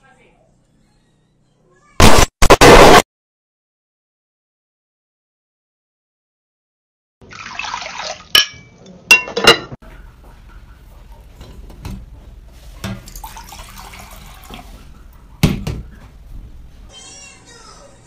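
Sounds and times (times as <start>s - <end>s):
dishware clinking: 8.3s - 9.8s
kitchenware knocking: 8.4s - 9.8s
liquid pouring into cup: 13.1s - 14.7s.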